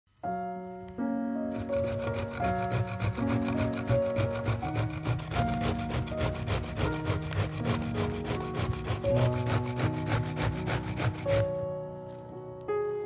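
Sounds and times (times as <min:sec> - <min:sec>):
soft piano music: 0:00.1 - 0:13.0
zucchini grating on metal grater: 0:01.5 - 0:11.5.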